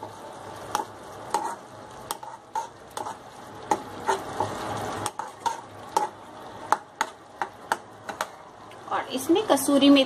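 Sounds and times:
soft sizzle of frying: 0.0s - 10.0s.

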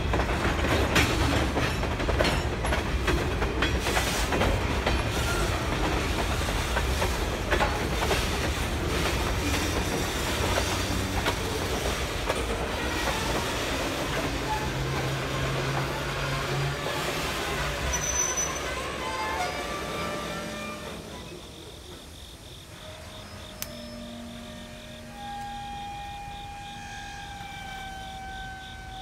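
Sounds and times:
wheels clicking over rail joints: 0.0s - 16.8s
freight train rumbling: 0.0s - 29.0s.

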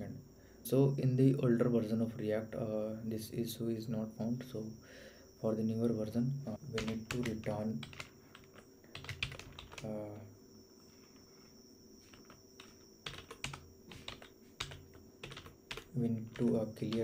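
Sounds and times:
computer keyboard typing: 6.6s - 10.2s, 12.0s - 17.0s.

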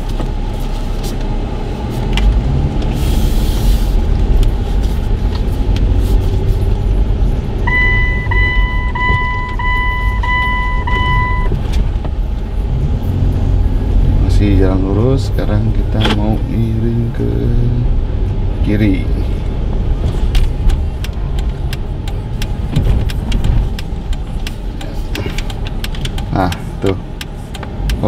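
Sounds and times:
car engine and road rumble: 0.0s - 28.0s
dashboard warning chime beeping: 7.6s - 11.6s.

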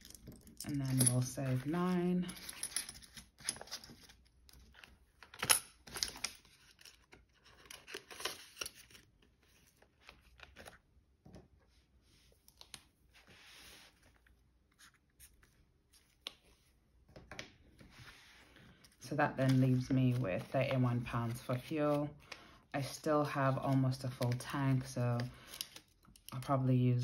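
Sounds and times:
paper rustling and crinkling: 1.5s - 10.8s.

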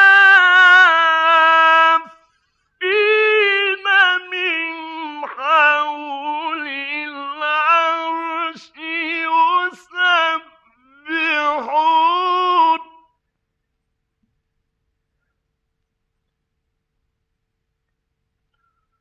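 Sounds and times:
man chanting: 0.0s - 2.2s, 2.8s - 13.1s.

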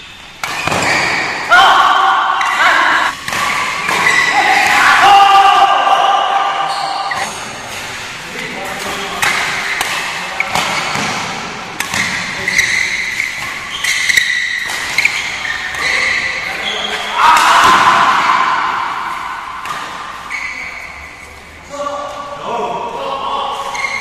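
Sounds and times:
shoes squeaking on court: 0.0s - 1.5s, 2.4s - 4.8s, 6.6s - 11.2s, 11.8s - 17.2s, 19.1s - 21.6s, 23.6s - 24.0s
racket striking shuttlecock: 9.2s - 12.4s.

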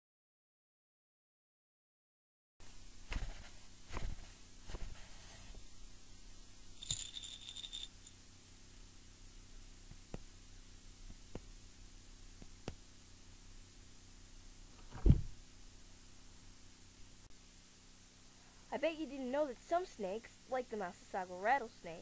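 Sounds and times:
high-pitched buzzing rattle: 6.8s - 8.2s.

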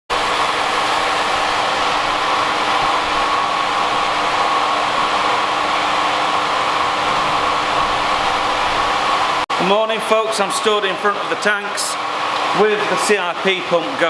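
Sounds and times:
electric pump whirring hum: 0.1s - 14.0s.

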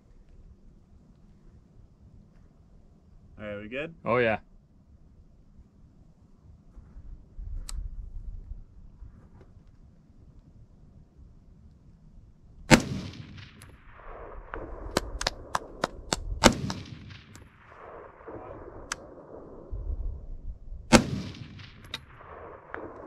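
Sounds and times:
rifle shots echoing: 12.7s - 23.0s.

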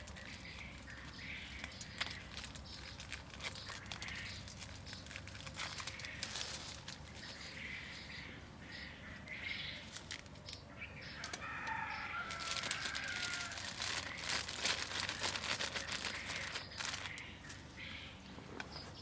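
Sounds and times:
plastic bag crinkling: 0.0s - 7.4s, 9.9s - 10.4s, 11.4s - 17.3s.

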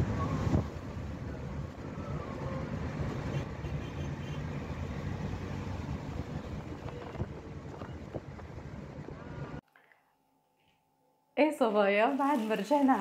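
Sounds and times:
car road and engine rumble: 0.0s - 9.6s.

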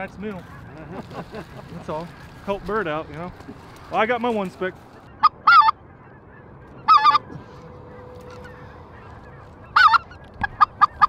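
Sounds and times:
goose call yodels: 5.0s - 11.0s.

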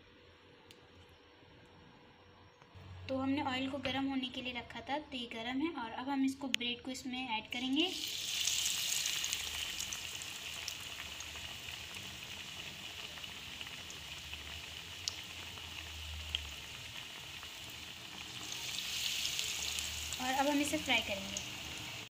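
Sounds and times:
deep-frying in hot oil: 7.0s - 22.0s.

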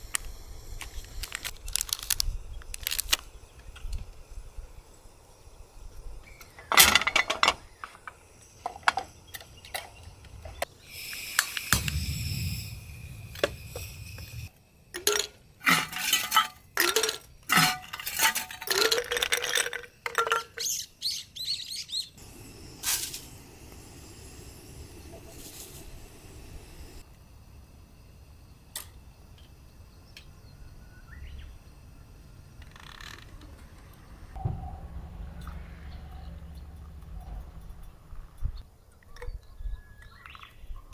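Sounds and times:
steady hiss: 0.0s - 18.9s, 20.6s - 34.4s
dishes and cookware clinking: 15.0s - 19.2s.

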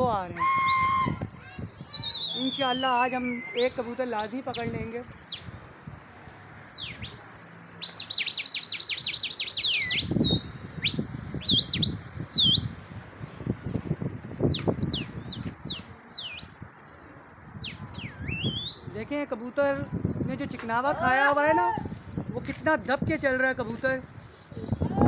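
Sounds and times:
person whistling loudly: 0.4s - 4.4s, 7.0s - 12.7s.

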